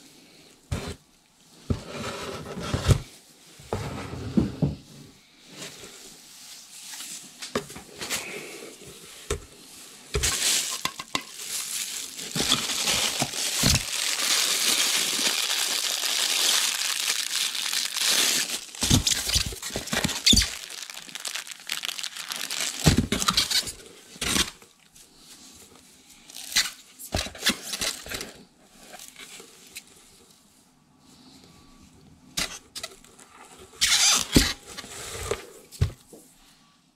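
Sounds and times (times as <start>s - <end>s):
plastic wrap crinkling: 10.2s - 25.0s, 26.3s - 26.8s.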